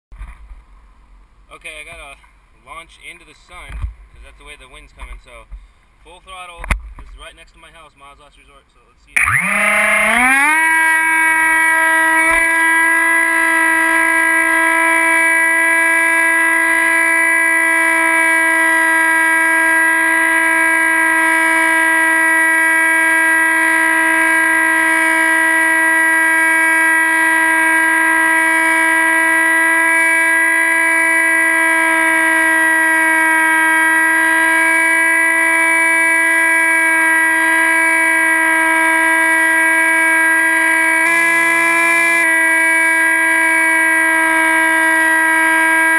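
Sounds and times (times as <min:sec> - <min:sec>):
electric motor and propeller whine: 0:09.2 - 0:45.9.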